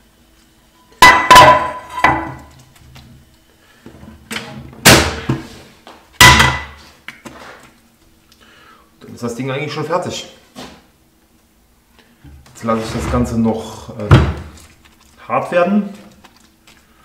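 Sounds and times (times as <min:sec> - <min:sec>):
frying pan clanking on metal bowl: 0:01.0 - 0:02.4, 0:06.2 - 0:06.8.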